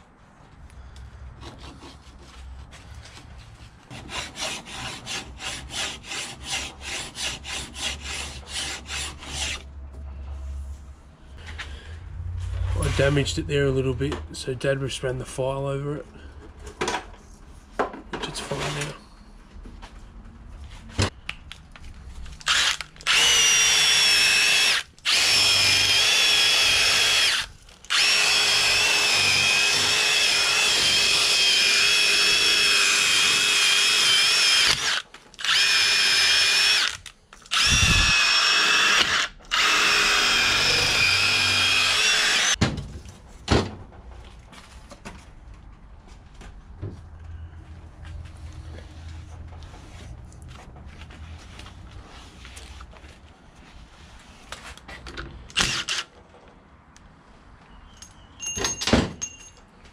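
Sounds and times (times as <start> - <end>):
cordless drill whining: 22.4 - 42.6.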